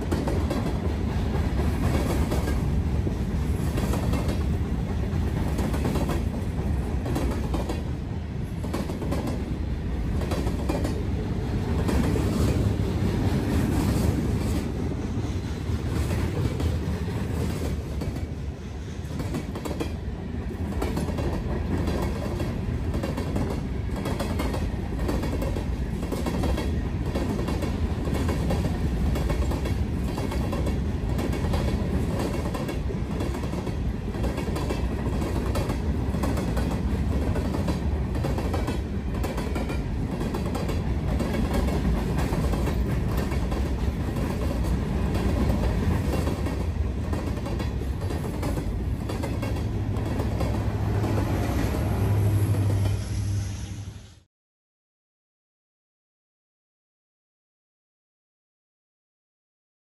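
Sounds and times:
freight train rumbling past: 0.0s - 54.3s
wheels clicking over rail joints: 20.6s - 51.4s.

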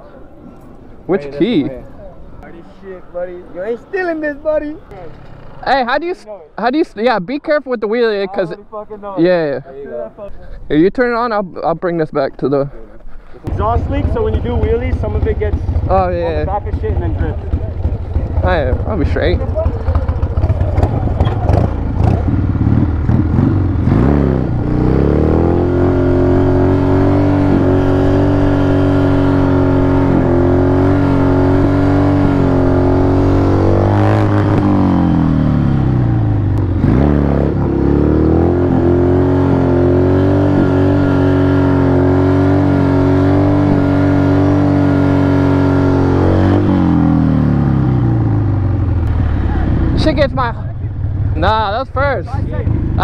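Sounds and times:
motorcycle engine revving: 4.6s - 6.0s, 13.5s - 53.0s.

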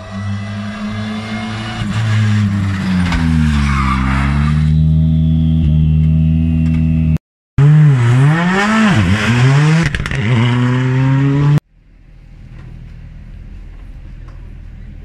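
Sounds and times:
rally car engine revving: 0.0s - 11.6s.

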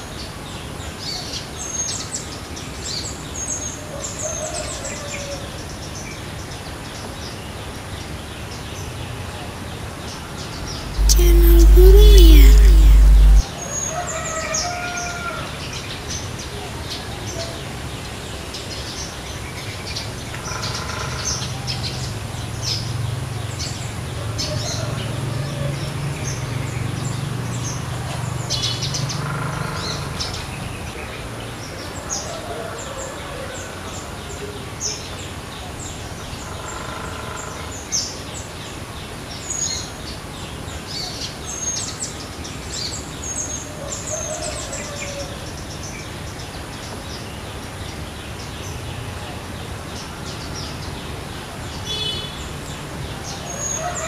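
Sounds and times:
low hum: 10.6s - 13.4s
bird lower call: 10.7s - 13.4s.

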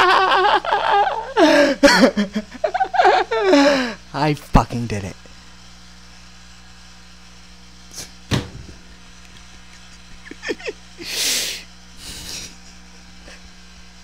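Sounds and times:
person giggling: 0.0s - 4.0s, 9.7s - 13.5s
low electrical hum: 0.0s - 14.0s
microphone handling click and thump: 8.3s - 8.8s.

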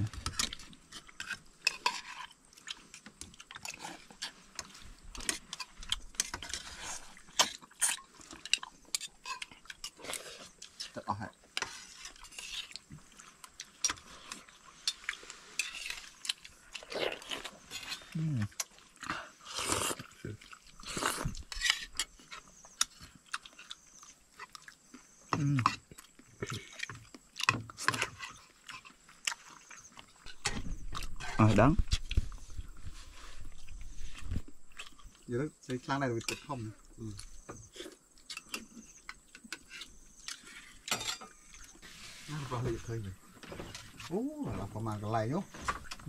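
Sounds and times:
person crunching and chewing: 0.0s - 35.3s, 36.1s - 41.8s
utensils clinking on dishes: 40.9s - 41.4s.

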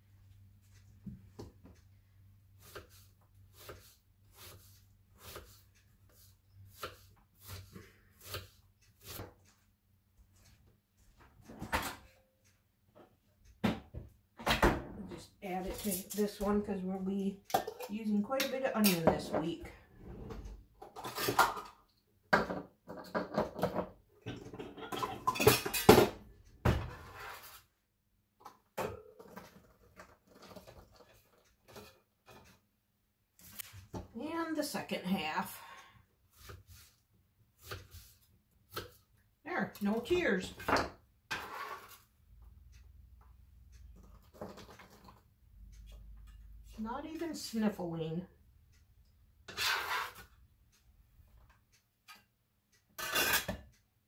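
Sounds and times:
kitchen utensils clinking: 22.9s - 26.2s.

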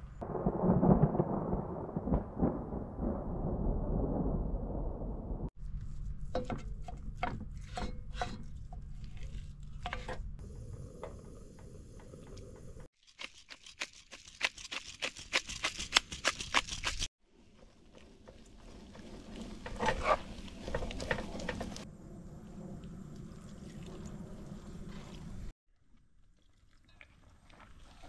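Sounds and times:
thunder rumble: 0.0s - 5.5s
rain: 0.2s - 5.4s, 18.0s - 25.5s.

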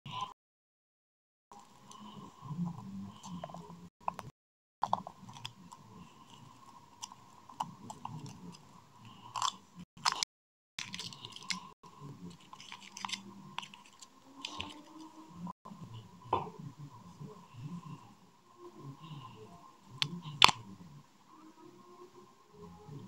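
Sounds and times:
foil wrapper crinkling: 10.8s - 11.6s, 12.5s - 15.0s.

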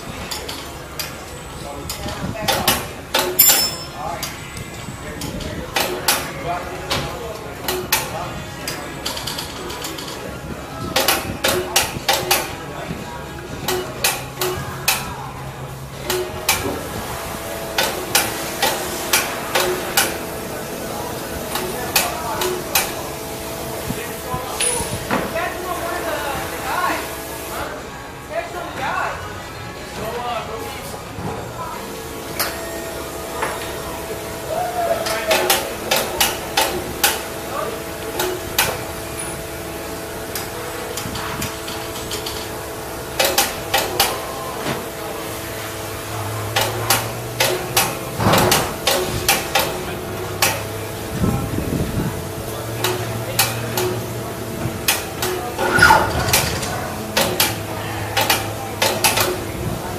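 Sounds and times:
steady machine hum: 0.0s - 59.9s
metal-on-metal clanks: 2.5s - 4.3s.

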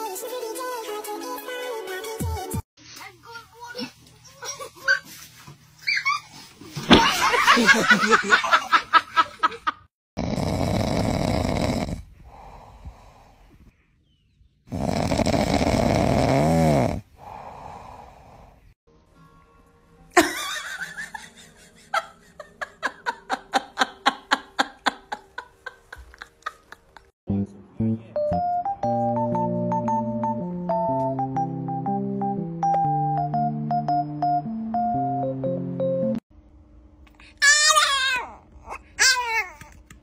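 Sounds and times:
pig snoring: 10.2s - 13.3s, 14.7s - 18.6s.

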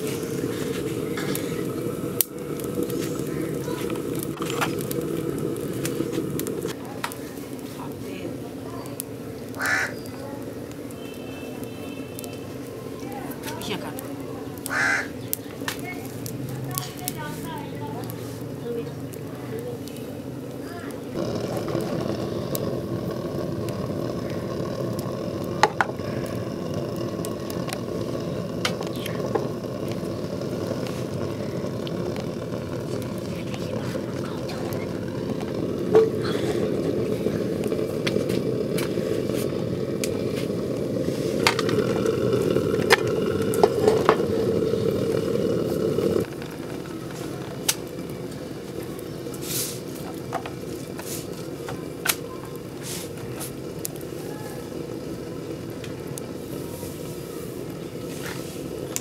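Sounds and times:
gas stove burner rushing: 0.0s - 7.9s, 20.7s - 59.0s.

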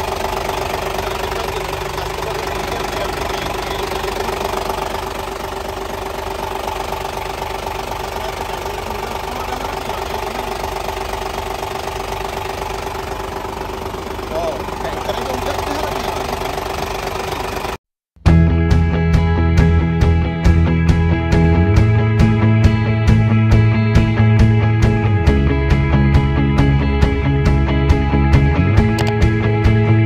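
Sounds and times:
diesel engine idling: 0.0s - 17.8s, 19.6s - 30.0s.

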